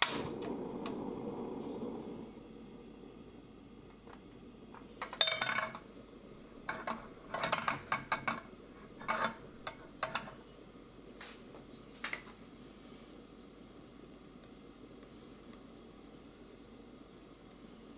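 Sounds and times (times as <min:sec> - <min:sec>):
frying pan clattering on stove: 0:05.0 - 0:05.9, 0:06.6 - 0:10.4.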